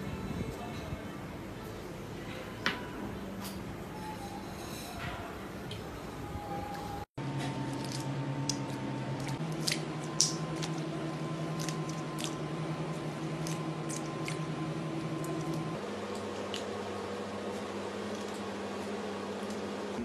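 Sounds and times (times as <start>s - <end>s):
steady low hum: 5.3s - 20.0s
wet squelching of fish gutting: 7.6s - 10.9s, 11.5s - 12.5s, 13.3s - 16.8s.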